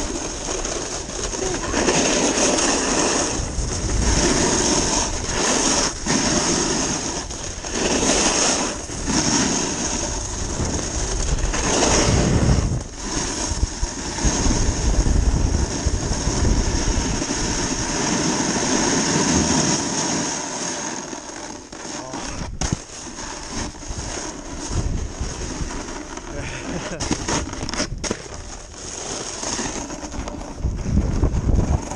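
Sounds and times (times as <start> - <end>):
snowboard hissing over snow: 0.0 - 27.5
wind rushing over microphone: 1.0 - 19.4, 22.3 - 22.9, 23.6 - 28.1, 30.1 - 31.9.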